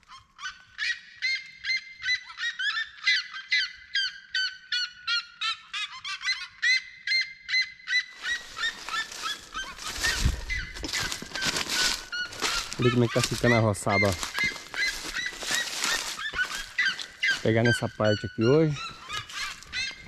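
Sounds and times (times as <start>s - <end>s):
birds calling in duet: 0.0s - 20.0s.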